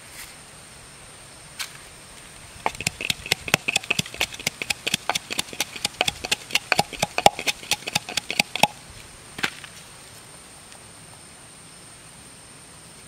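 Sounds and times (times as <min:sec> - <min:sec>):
wooden pestle knocking in mortar: 0:02.7 - 0:08.8.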